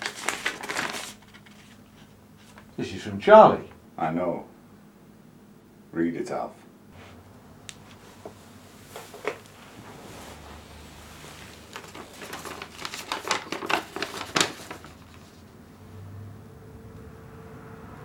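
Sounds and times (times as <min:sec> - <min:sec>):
paper rustling and crackling: 0:00.0 - 0:02.8, 0:07.8 - 0:15.5.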